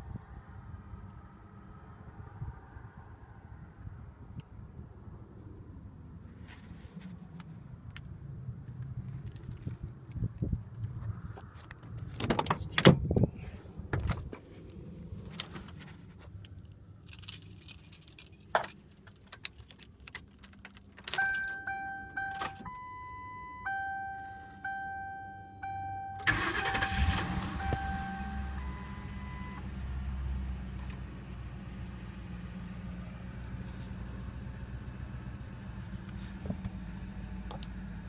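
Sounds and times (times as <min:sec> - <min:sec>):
keys jangling: 0:16.4 - 0:22.7
car door opening: 0:20.5 - 0:29.4
car engine starting: 0:20.5 - 0:38.0
car warning chimes: 0:21.0 - 0:29.7
car starter cranking: 0:26.1 - 0:29.2.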